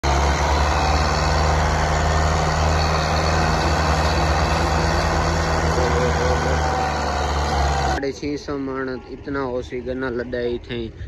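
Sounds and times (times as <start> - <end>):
tractor diesel engine under load: 0.0 - 8.0.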